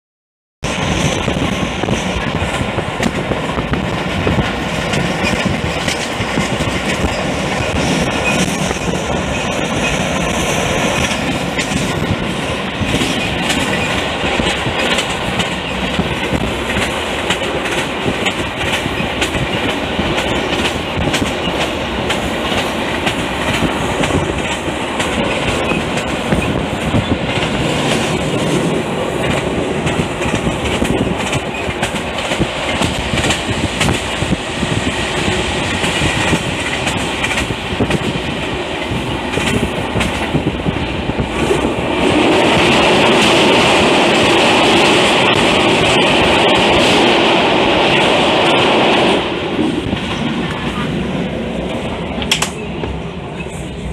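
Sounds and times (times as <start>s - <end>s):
train rumble: 0.6s - 53.9s
wheels clacking over rails: 0.9s - 40.5s.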